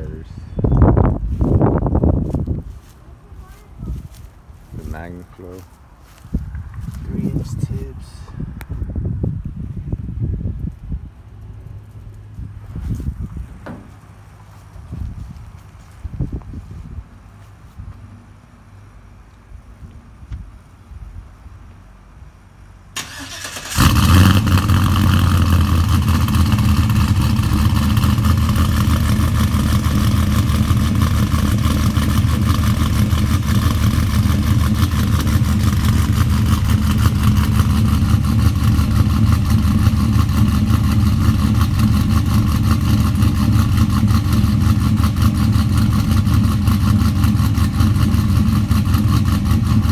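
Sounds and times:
starter motor cranking: 0:23.0 - 0:25.4
car engine revving and idling: 0:23.3 - 0:49.9.

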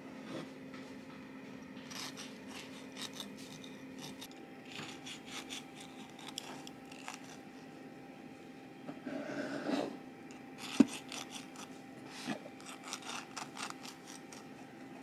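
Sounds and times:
knife sawing through cake crust: 0:01.9 - 0:07.4, 0:09.1 - 0:09.9, 0:10.6 - 0:14.6.

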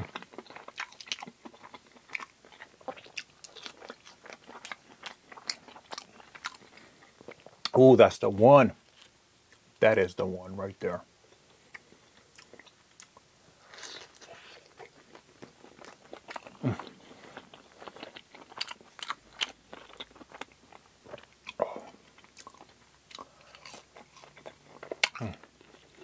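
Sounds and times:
chewing crispy fried food: 0:00.0 - 0:07.8, 0:08.8 - 0:09.7, 0:11.3 - 0:26.0.

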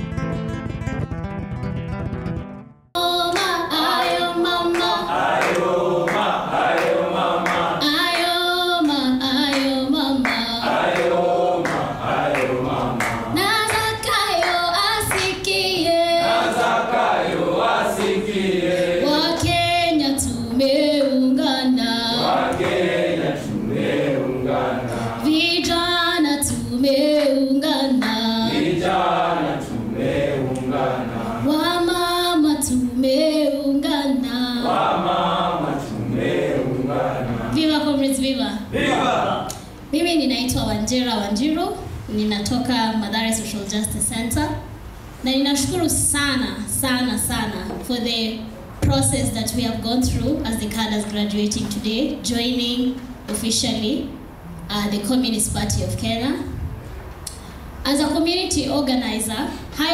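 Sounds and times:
choir singing: 0:03.7 - 0:08.1, 0:10.2 - 0:13.4, 0:15.8 - 0:20.0, 0:21.8 - 0:25.3, 0:28.3 - 0:31.7, 0:34.6 - 0:37.6, 0:38.7 - 0:39.5.

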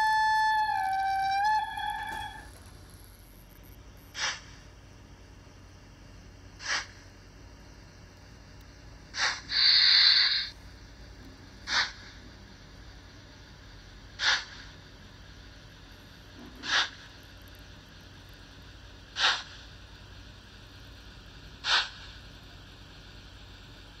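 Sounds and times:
hissing steam chuffs: 0:00.0 - 0:02.9, 0:04.1 - 0:04.6, 0:06.6 - 0:07.1, 0:09.1 - 0:10.6, 0:11.6 - 0:12.4, 0:14.1 - 0:15.4, 0:16.3 - 0:17.2, 0:19.0 - 0:20.7, 0:21.5 - 0:23.7.

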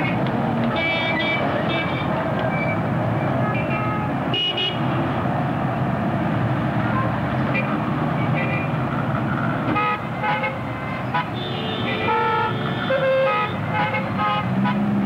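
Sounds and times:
road traffic din: 0:00.0 - 0:15.0
car horn toots: 0:00.7 - 0:02.1, 0:09.8 - 0:14.9.

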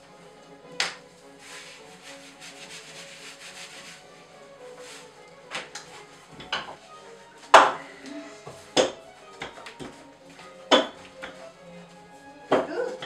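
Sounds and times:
hands rubbing dough: 0:00.8 - 0:04.1, 0:04.8 - 0:07.7.

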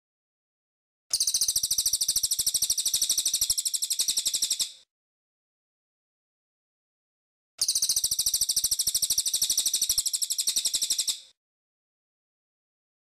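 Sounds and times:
bird rattling trill: 0:01.1 - 0:04.8, 0:07.6 - 0:11.3.

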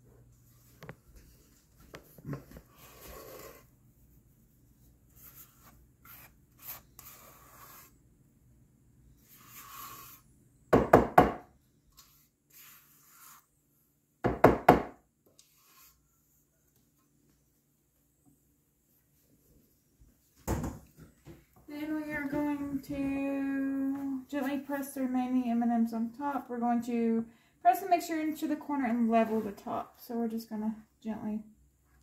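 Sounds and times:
spatula scraping bowl: 0:09.2 - 0:10.3, 0:12.0 - 0:13.6.

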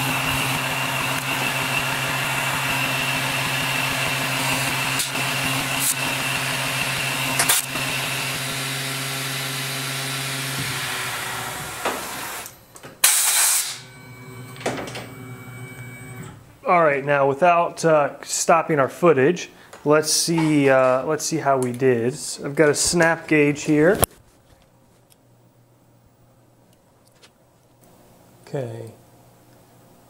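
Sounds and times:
mill spindle humming: 0:00.0 - 0:12.9, 0:13.7 - 0:16.6
loud air hiss: 0:13.0 - 0:13.8.

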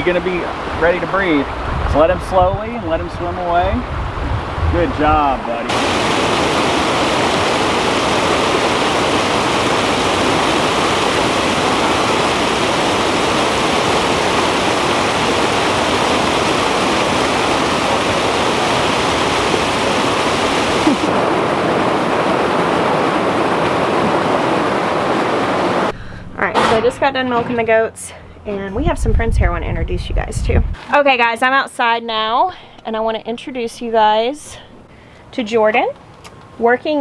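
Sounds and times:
stream rushing over rocks: 0:05.1 - 0:25.9.

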